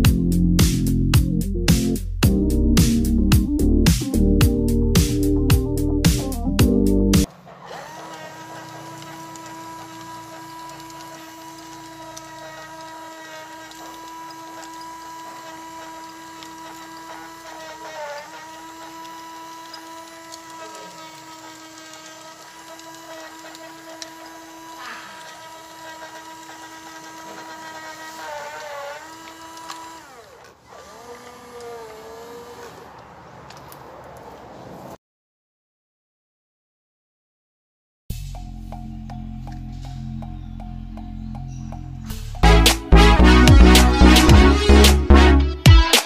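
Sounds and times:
electric motor and pump whine: 2.5s - 33.0s.

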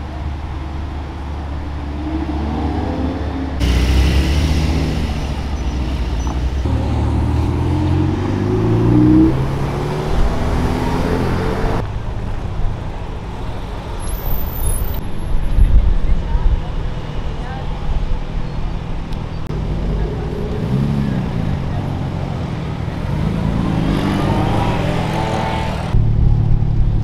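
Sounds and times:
sports car engines revving: 0.2s - 12.4s, 19.5s - 26.2s.

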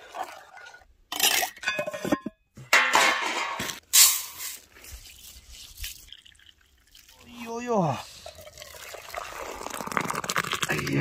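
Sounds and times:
metal cookware clinking and scraping: 1.2s - 4.5s.

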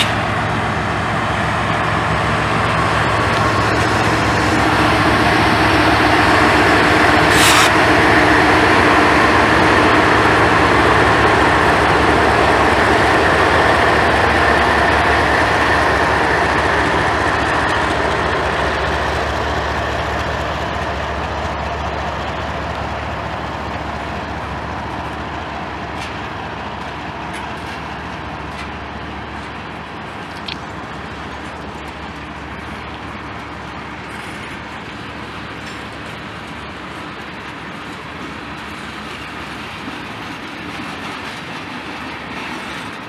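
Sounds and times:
diesel locomotive engine drone: 0.0s - 43.0s
tank cars rumbling on rails: 0.0s - 43.0s
brief hiss: 7.3s - 7.8s.

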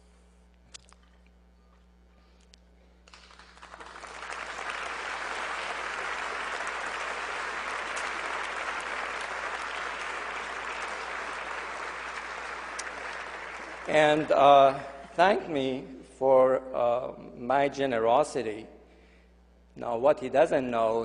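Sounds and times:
audience applauding: 3.1s - 14.8s.

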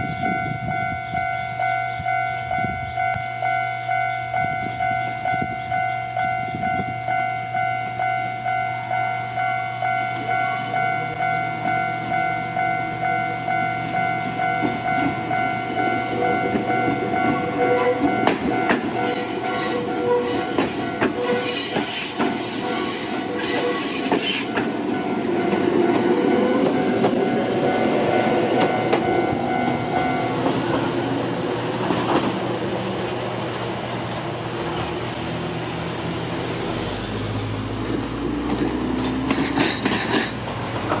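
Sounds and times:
level crossing alarm ringing: 0.0s - 30.8s
electric train passing: 0.0s - 41.0s.

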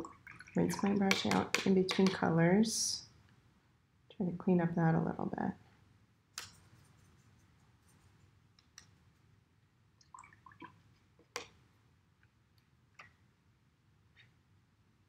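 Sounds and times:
brush tapping on plastic cup: 0.7s - 2.2s.

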